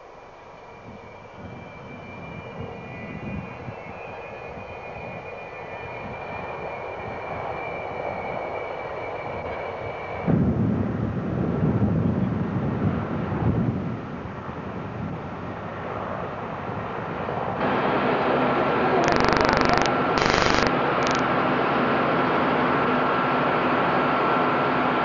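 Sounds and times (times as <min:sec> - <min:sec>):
jet engines whining: 0:17.6 - 0:22.4.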